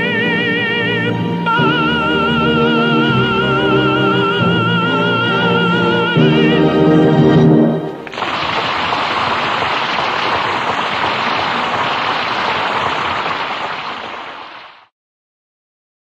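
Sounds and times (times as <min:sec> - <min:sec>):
audience applauding: 0:08.1 - 0:14.9.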